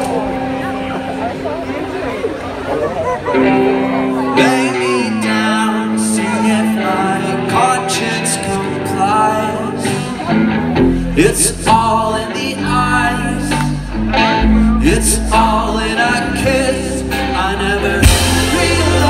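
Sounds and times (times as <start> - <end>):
rock band playing: 0.0 - 19.0
man singing lead: 4.1 - 19.0
heavy bass line: 9.7 - 19.0.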